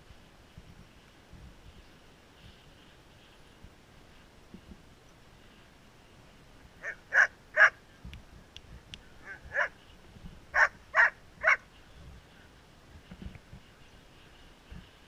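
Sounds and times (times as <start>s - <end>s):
dog barking: 6.8s - 7.8s, 9.2s - 9.7s, 10.6s - 11.6s.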